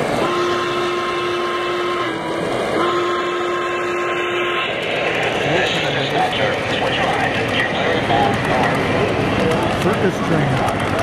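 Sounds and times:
train running on track: 0:00.0 - 0:11.0
model train whistle blasts: 0:00.2 - 0:02.2, 0:02.8 - 0:04.6.

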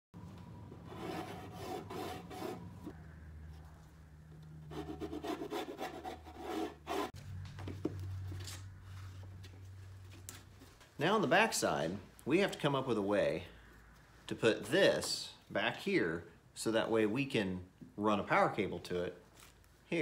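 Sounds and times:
low steady hum: 0:00.2 - 0:15.6.

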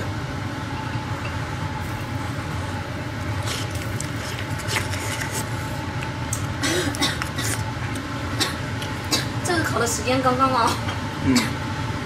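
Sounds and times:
fan hum with high whine: 0:00.0 - 0:12.0
wet slurping: 0:01.8 - 0:05.9.

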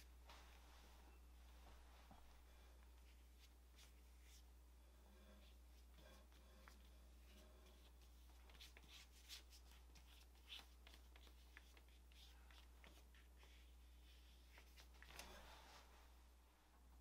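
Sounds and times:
low steady hum: 0:00.0 - 0:17.0
brush scraping on paper: 0:05.1 - 0:16.0.

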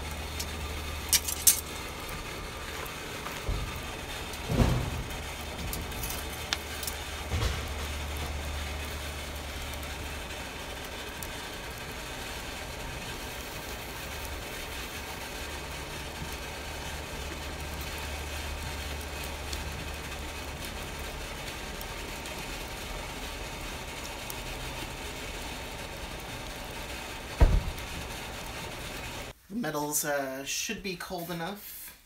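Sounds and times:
low machine hum: 0:00.0 - 0:29.4
loud knock: 0:27.4 - 0:27.8.

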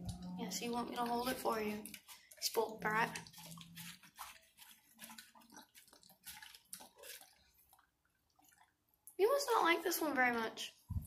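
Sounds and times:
dog chewing wet food: 0:00.0 - 0:08.8.

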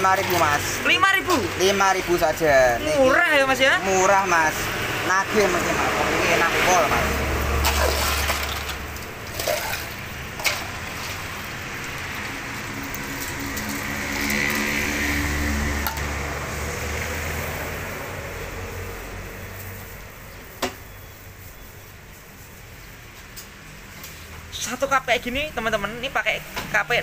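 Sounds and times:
road traffic hum: 0:00.0 - 0:27.0
plastic scoop digging ice: 0:07.6 - 0:11.3
ice clicking and clinking: 0:07.6 - 0:11.4.

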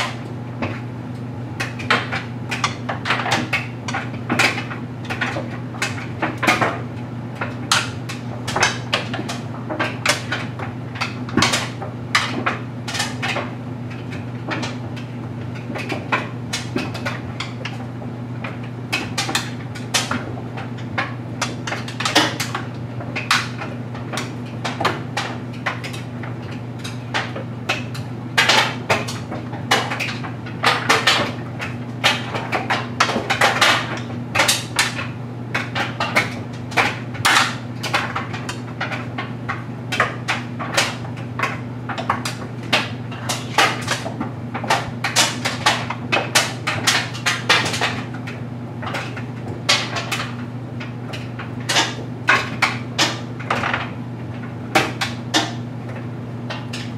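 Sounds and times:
clothes dryer humming: 0:00.0 - 0:56.9.

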